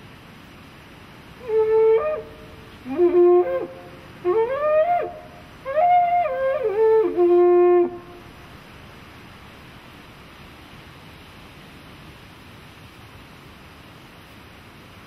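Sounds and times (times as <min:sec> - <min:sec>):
war trumpet blown: 0:01.4 - 0:08.3.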